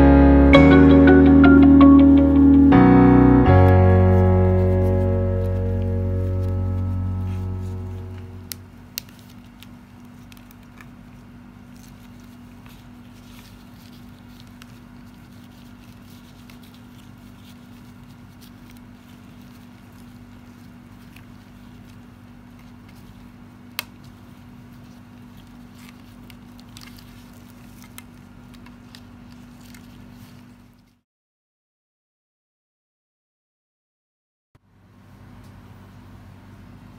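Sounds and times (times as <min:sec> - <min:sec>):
steady low hum: 0:00.0 - 0:31.0
faint rustling of wrapper: 0:08.8 - 0:31.0.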